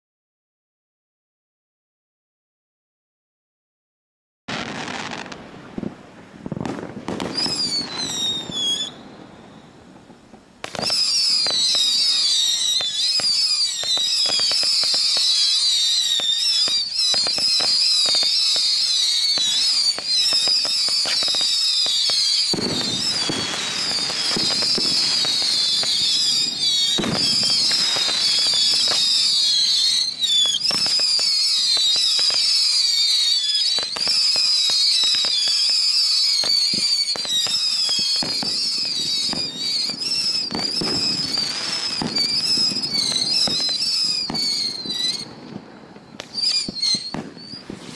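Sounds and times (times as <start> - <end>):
firework whistles: 4.5 - 5.9, 6.5 - 47.9
firework pops: 4.6 - 9.0, 10.6 - 15.5, 16.1 - 32.5, 36.4 - 47.9.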